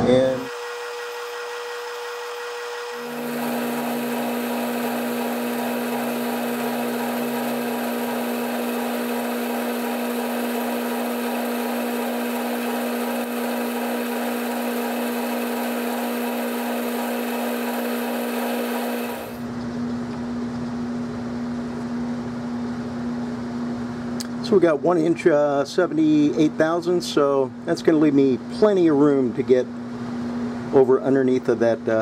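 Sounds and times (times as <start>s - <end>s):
lathe spindle humming: 0.4s - 19.5s
lathe tool cutting steel whine: 0.4s - 19.5s.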